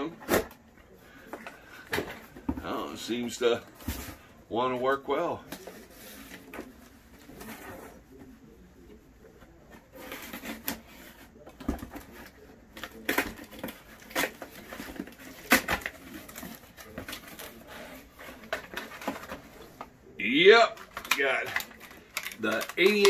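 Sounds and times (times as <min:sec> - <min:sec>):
packing paper crackling: 0:20.7 - 0:23.0.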